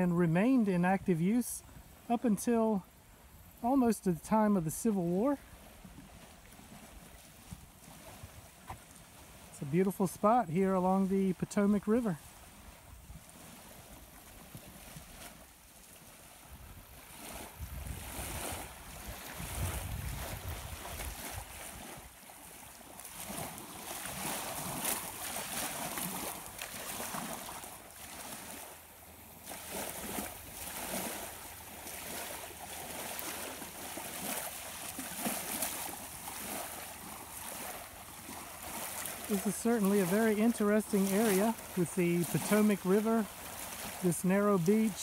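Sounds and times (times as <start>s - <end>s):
small waves lapping on sand: 0.0s - 45.0s
wind buffeting microphone: 16.4s - 22.2s.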